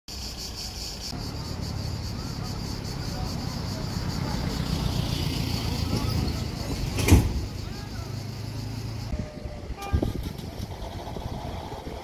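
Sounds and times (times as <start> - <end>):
high-pitched insect buzz: 0.1 - 6.2
low rumble of wind or traffic: 0.4 - 12.0.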